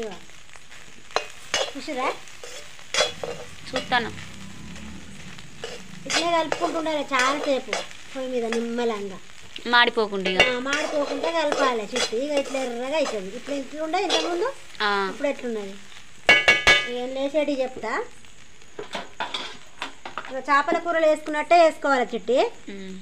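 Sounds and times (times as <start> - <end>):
frying sizzle: 0.0 - 23.0
metal spatula scraping pan: 1.2 - 8.8, 10.2 - 13.4, 14.0 - 14.4
squealing scrapes: 2.3 - 8.1.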